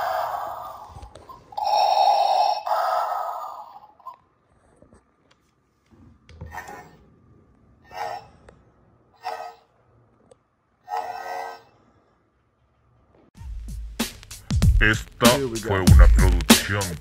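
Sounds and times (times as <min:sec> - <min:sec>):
mechanical respirator breathing: 0:00.0 - 0:04.2, 0:07.8 - 0:09.8.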